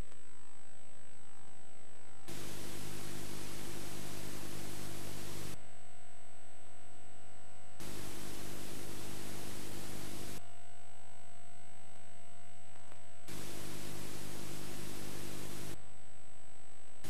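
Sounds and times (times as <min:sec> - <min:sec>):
steady mains hum: 0:00.0 - 0:17.0
tape playback hiss: 0:00.0 - 0:17.0.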